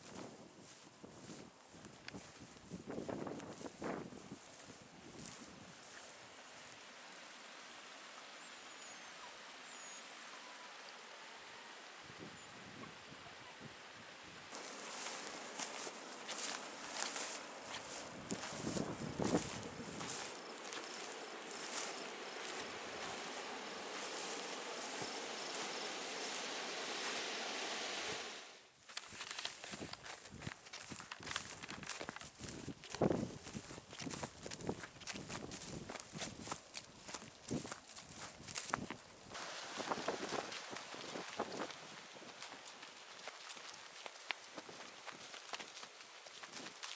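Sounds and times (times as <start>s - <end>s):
wind hissing over microphone: 0.0s - 6.0s, 12.0s - 28.6s, 29.8s - 42.8s
creek water over rocks: 14.5s - 28.7s, 30.8s - 46.9s.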